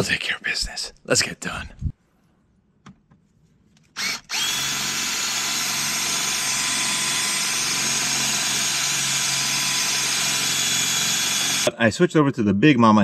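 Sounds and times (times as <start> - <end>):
cordless drill whining: 3.9 - 11.7.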